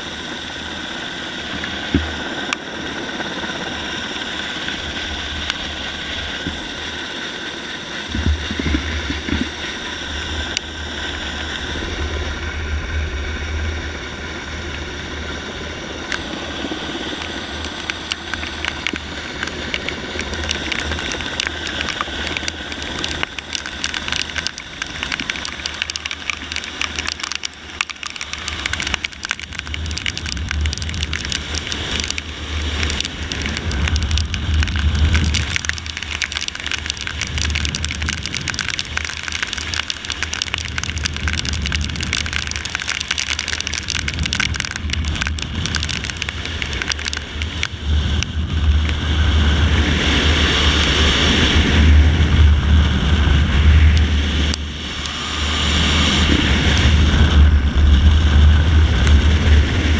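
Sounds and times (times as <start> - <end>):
helicopter turbine whine and rotor: 0.0 - 8.1.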